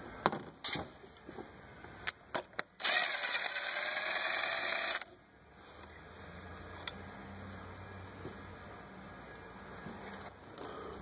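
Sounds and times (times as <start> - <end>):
cordless drill running: 2.8 - 5.1.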